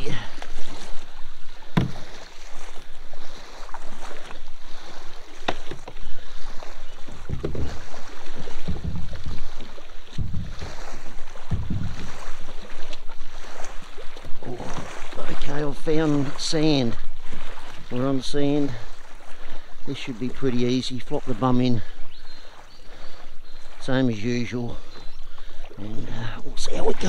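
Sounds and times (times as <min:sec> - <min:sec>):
river water sloshing around kayak: 0:00.0 - 0:27.0
sharp knocks: 0:01.8 - 0:02.0
dull low bumps: 0:07.0 - 0:13.1.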